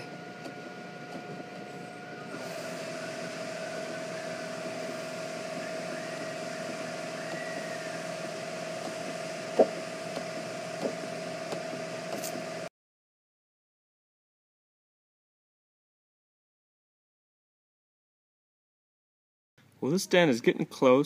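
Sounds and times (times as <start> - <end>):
fan hum: 0.0 - 12.7.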